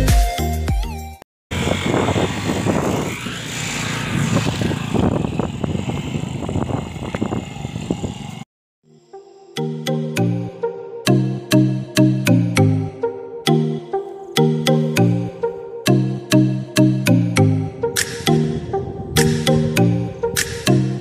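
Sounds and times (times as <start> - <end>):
background music: 0.0 - 1.2, 9.0 - 21.0
wind buffeting microphone: 1.5 - 8.4, 18.0 - 20.7.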